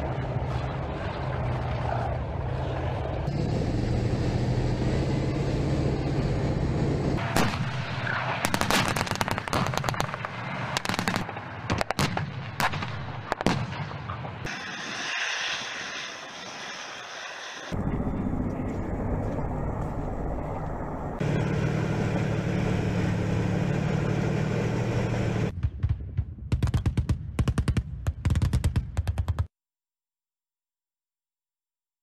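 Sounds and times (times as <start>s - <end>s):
tank engines droning: 0.0s - 25.5s
gunfire shots: 7.2s - 14.1s.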